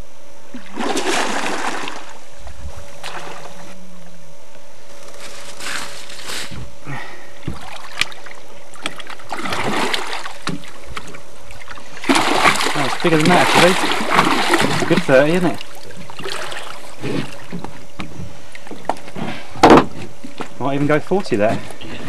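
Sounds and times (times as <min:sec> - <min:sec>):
fish splashing in water: 0:00.6 - 0:02.2, 0:07.5 - 0:17.9.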